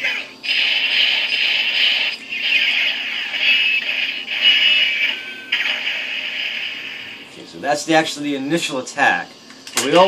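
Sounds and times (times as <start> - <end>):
toy sword electronic sound effects: 0.0 - 7.3.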